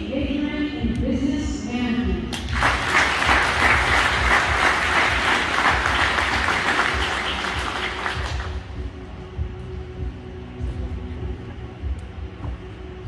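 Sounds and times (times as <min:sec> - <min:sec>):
audience applauding: 0:02.4 - 0:08.7.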